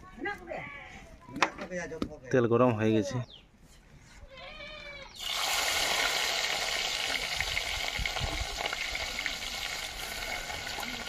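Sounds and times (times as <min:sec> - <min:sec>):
food sizzling in hot oil: 0:05.2 - 0:11.0.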